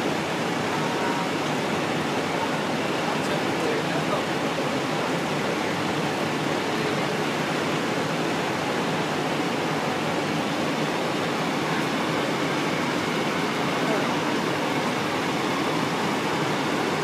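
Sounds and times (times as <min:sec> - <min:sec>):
diesel engines idling: 0:00.0 - 0:17.0.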